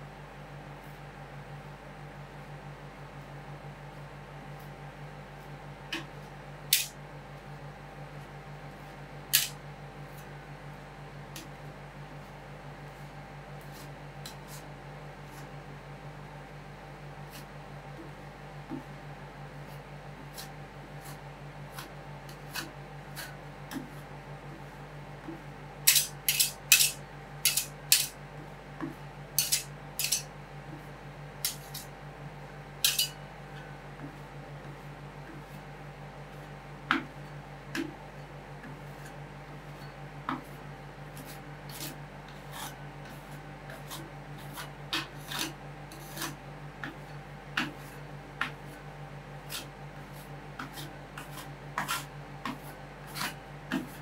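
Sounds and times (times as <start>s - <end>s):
steady low hum: 0.0s - 54.0s
metal spatulas tapping and scraping: 6.7s - 6.9s, 9.3s - 9.6s, 25.2s - 28.2s, 29.4s - 30.3s, 31.4s - 31.9s, 32.8s - 33.2s, 50.6s - 54.0s.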